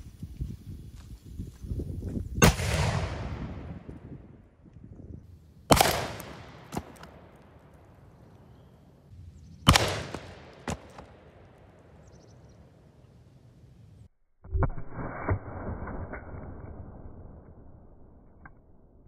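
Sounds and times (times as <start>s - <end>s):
cannon booms: 2.4s - 3.9s, 5.7s - 7.8s, 9.7s - 11.6s
cannonball cracking into wood: 5.7s - 7.8s, 9.7s - 11.6s.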